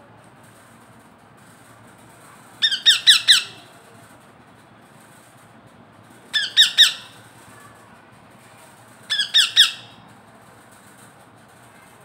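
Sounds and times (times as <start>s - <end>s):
parakeet squawking: 2.6s - 3.6s, 6.3s - 7.1s, 9.1s - 9.9s.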